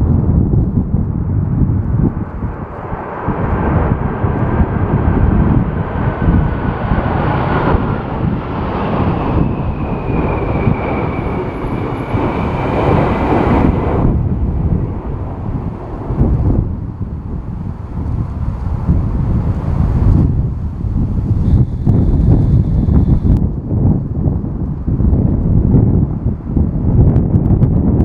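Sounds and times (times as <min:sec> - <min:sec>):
wind rumble on microphone: 0:00.0 - 0:28.0
jet engines whining: 0:02.0 - 0:23.4.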